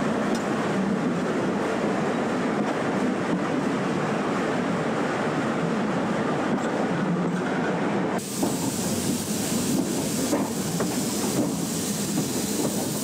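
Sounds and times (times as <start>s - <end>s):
steam train rolling on track: 0.0s - 13.0s
hiss of steam from locomotive: 8.2s - 13.0s.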